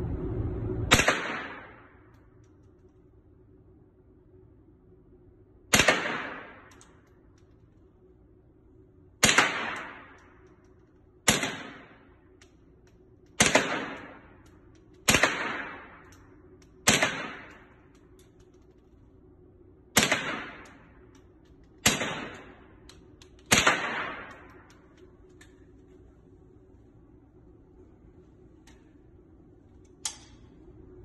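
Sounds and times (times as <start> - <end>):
rifle shots echoing indoors: 0.4 - 3.4, 5.5 - 26.0.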